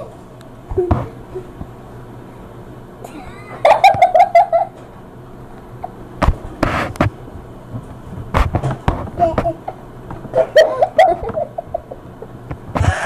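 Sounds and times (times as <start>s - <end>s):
girls giggling: 3.1s - 4.8s, 10.4s - 13.0s.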